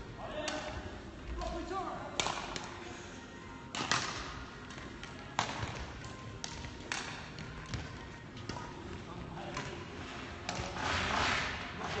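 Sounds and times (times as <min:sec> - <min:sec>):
rackets hitting shuttlecocks: 0:02.2 - 0:02.7, 0:03.7 - 0:09.8, 0:10.4 - 0:11.5.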